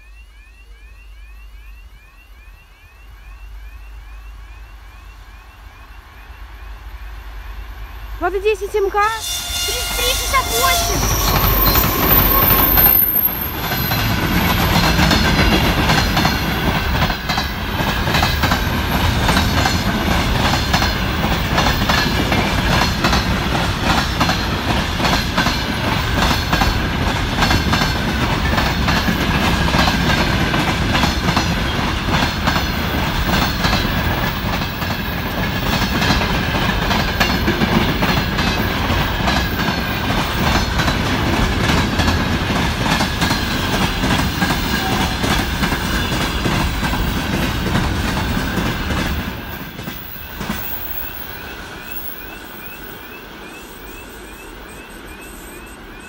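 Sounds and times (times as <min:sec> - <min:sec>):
thin high tone: 0:08.8 - 0:13.7
train wheels clacking over rail joints: 0:11.1 - 0:52.3.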